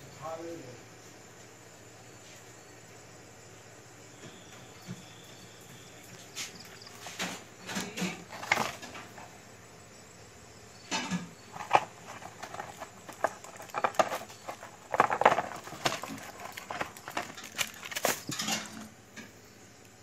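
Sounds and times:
plastic wrapping crinkling: 11.5s - 18.8s.

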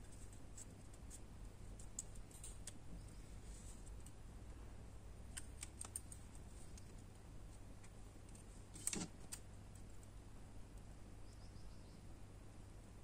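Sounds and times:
wire twisting clicks: 1.8s - 2.8s, 5.3s - 7.0s.

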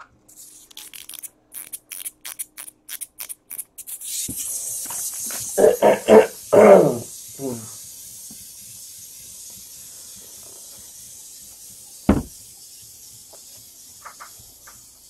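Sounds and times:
faint steady hiss: 3.8s - 15.0s
sharp thump: 12.1s - 12.4s.

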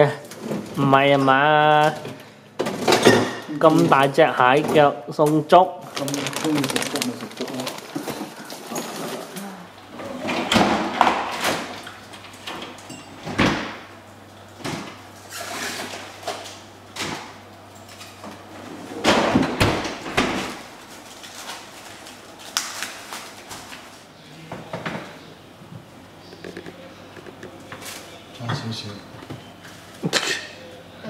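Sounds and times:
plastic bags rustling: 5.8s - 9.6s, 20.6s - 24.1s
cling wrap pulled and crinkled: 5.9s - 8.8s, 20.8s - 24.0s
refrigerator door opening and closing: 12.4s - 13.8s, 18.8s - 20.6s.

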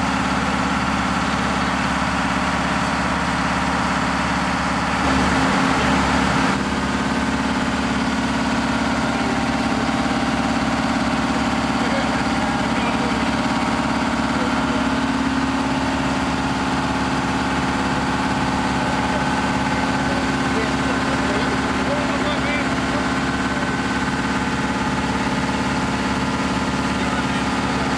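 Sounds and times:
pump engine running: 0.0s - 27.9s.

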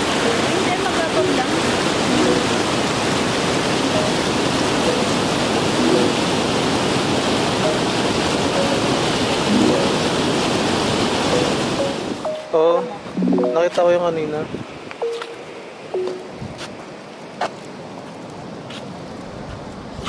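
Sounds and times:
water rushing over weir: 0.0s - 14.4s.

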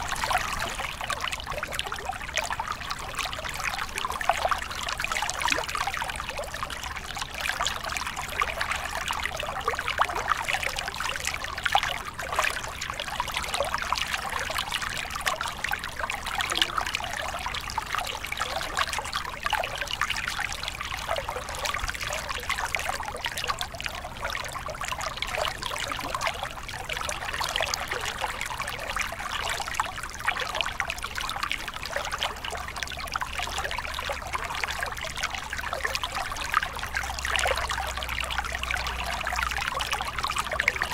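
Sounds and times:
stream splashing over rocks: 0.0s - 40.9s.

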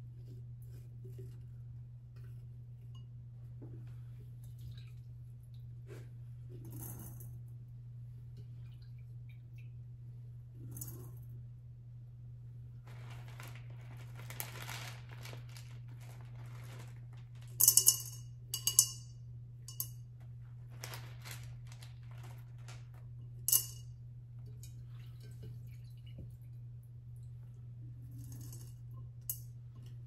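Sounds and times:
flower stems rustling: 12.9s - 17.6s, 20.6s - 23.1s.

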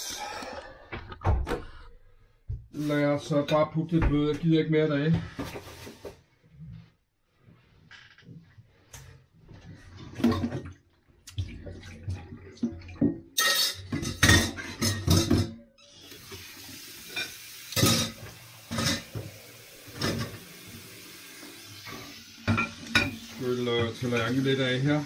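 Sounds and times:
dishes clattering in a steel sink: 10.1s - 10.8s, 12.7s - 15.7s, 17.0s - 20.5s, 21.8s - 24.5s
tap water running into sink: 11.3s - 25.0s.

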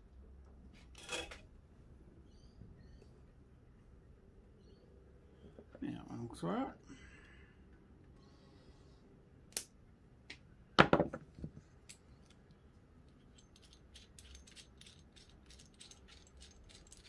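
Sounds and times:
knock: 10.8s - 11.2s.

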